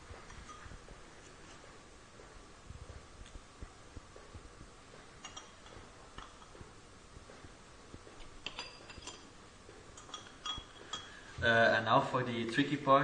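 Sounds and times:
small glass clinks: 5.2 - 6.5, 8.4 - 9.3, 10.0 - 11.2.

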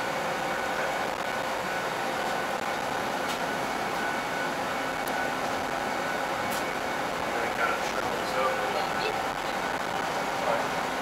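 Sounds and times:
funicular cabin running noise: 0.0 - 11.0.

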